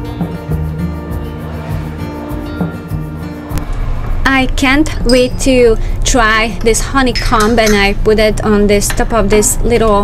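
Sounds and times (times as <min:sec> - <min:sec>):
background music with held notes: 0:00.0 - 0:04.2.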